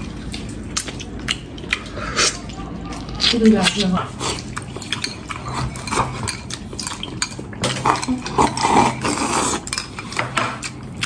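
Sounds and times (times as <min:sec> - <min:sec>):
food chewing: 0:00.0 - 0:11.0
slurp from a bowl: 0:07.8 - 0:09.7.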